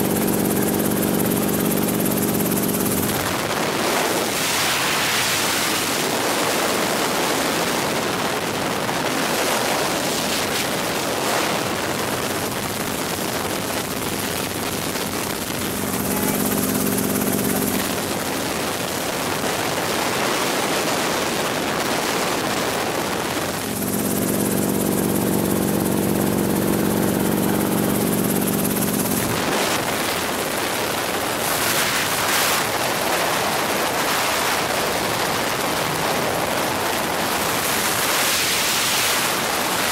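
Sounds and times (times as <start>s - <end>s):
helicopter rotor and engine rush: 0.0s - 39.9s
droning hum of steady tones: 9.9s - 20.0s, 21.6s - 39.9s.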